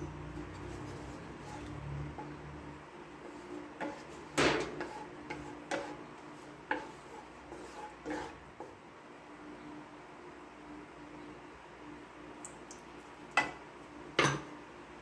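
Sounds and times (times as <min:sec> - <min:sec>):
wooden spatula scraping a wok: 0:00.0 - 0:08.8.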